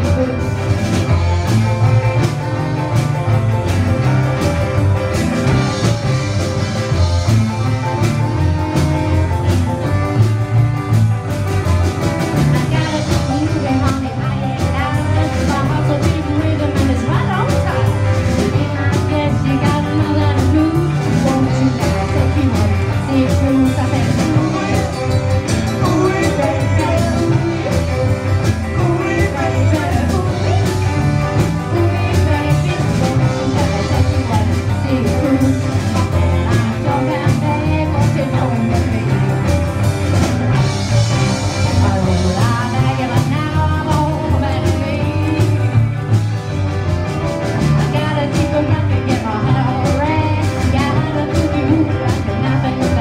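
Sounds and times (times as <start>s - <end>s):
woman singing: 0.0s - 1.4s, 12.3s - 39.7s, 41.6s - 46.0s, 47.8s - 53.0s
rock and roll band playing: 0.0s - 53.0s.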